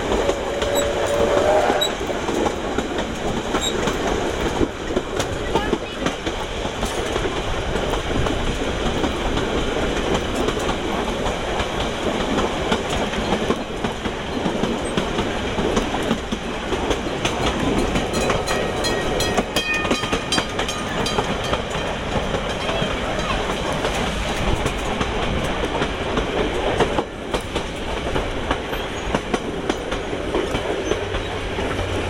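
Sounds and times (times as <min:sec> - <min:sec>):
railway carriage rumble: 0:00.0 - 0:32.0
wheels clacking over rail joints: 0:00.0 - 0:32.0.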